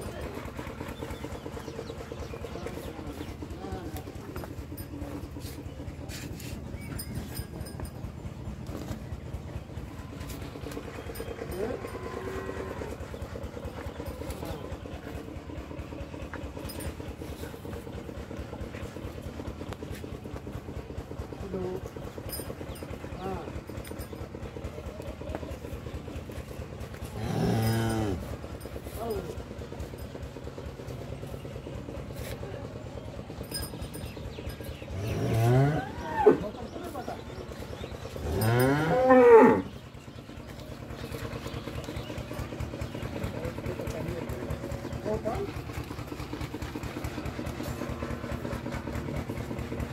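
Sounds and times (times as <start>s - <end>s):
engine throbbing: 0.0s - 49.9s
cow mooing: 11.7s - 13.0s, 27.1s - 28.4s, 34.9s - 36.5s, 38.2s - 39.7s.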